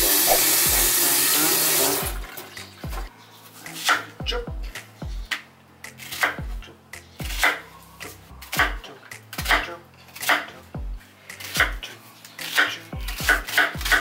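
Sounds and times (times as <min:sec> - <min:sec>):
knife chopping onion on plastic board: 0:10.2 - 0:10.5, 0:11.3 - 0:11.8, 0:12.4 - 0:14.0.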